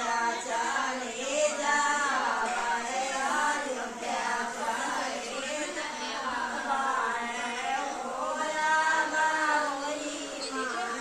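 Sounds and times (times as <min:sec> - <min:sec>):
women singing folk song: 0:00.0 - 0:11.0.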